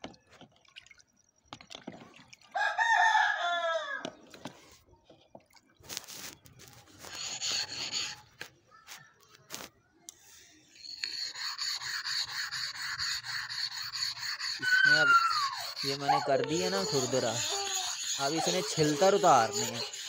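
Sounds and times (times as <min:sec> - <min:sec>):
abrasive block scraping stone: 0:07.0 - 0:08.3, 0:10.7 - 0:14.7, 0:15.4 - 0:20.0.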